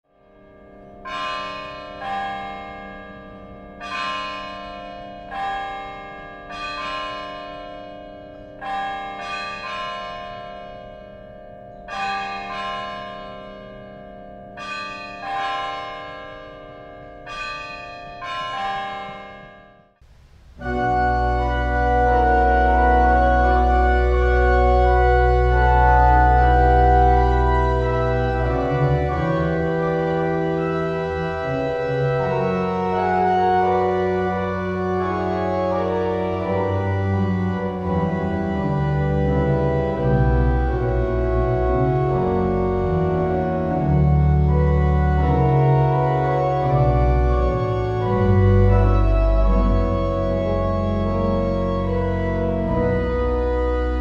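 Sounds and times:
church organ playing: 0.1 - 19.8, 20.6 - 54.0
bells ringing: 0.2 - 19.9.

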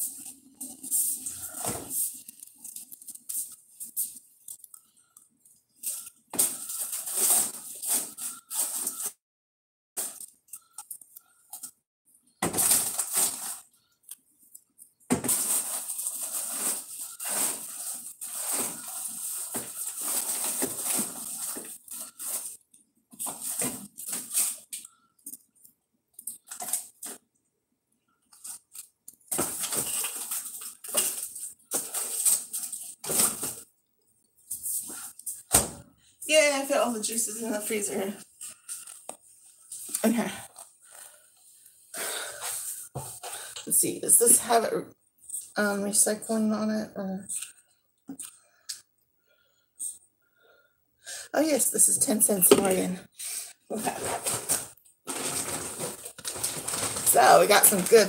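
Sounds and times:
groceries rustling and clattering: 0.0 - 9.2, 10.0 - 27.3, 28.2 - 33.7, 36.3 - 43.6, 53.7 - 58.0.

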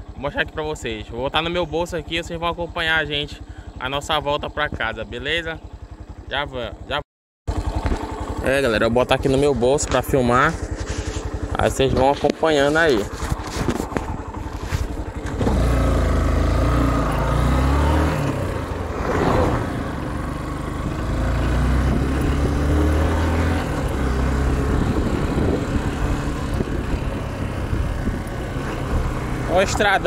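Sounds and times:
vehicle engine revving: 7.5 - 30.0
pocket rustle: 13.0 - 15.1.

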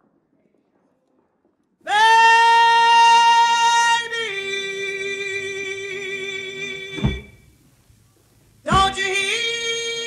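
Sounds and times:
woman singing blues: 8.7 - 10.0.

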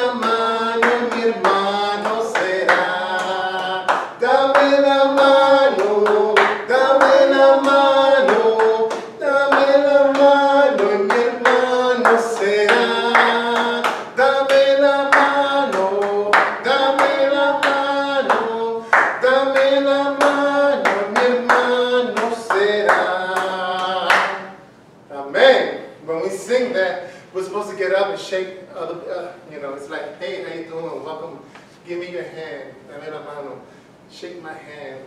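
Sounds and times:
hand claps: 0.0 - 24.5
congregation singing: 0.0 - 26.7.

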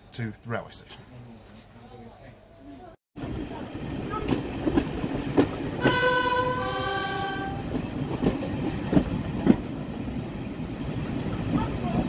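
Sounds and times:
train carriage rumbling: 3.2 - 12.0
wheels clacking over rail joints: 4.0 - 10.0
two-tone locomotive horn: 5.8 - 7.7.

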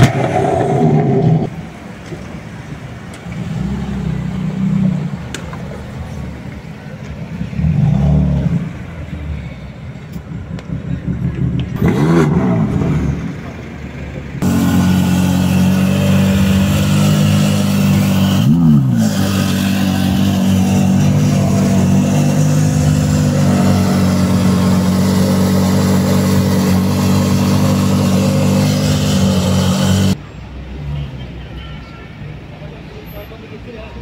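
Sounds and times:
car engine idling: 12.8 - 30.2.

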